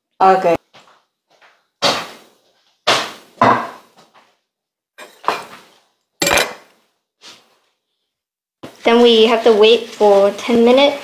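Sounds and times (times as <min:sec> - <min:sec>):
kitchenware knocking on wood: 0:03.4 - 0:03.8.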